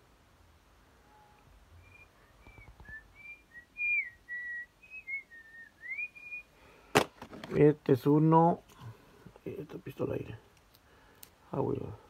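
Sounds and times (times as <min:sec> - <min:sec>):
person whistling a tune: 0:01.8 - 0:06.5.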